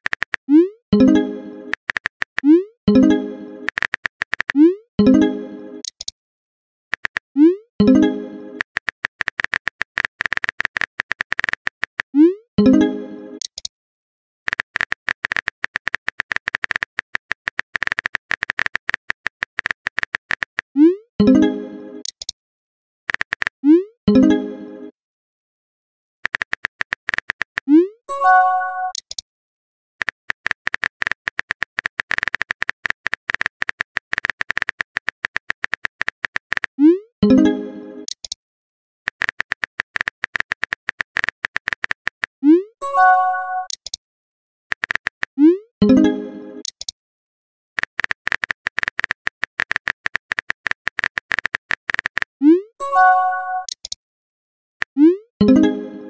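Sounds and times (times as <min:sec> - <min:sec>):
phone keyboard clicks: 0:00.0 - 0:00.4, 0:01.7 - 0:02.5, 0:03.7 - 0:04.6, 0:06.9 - 0:07.3, 0:08.6 - 0:12.1, 0:14.5 - 0:20.6, 0:23.1 - 0:23.5, 0:26.2 - 0:27.6, 0:30.0 - 0:36.7, 0:39.1 - 0:42.3, 0:43.6 - 0:44.0, 0:44.7 - 0:45.3, 0:46.6 - 0:46.9, 0:47.8 - 0:52.3, 0:53.6 - 0:54.0
message chime: 0:28.1 - 0:29.0, 0:42.8 - 0:43.7, 0:52.8 - 0:53.7.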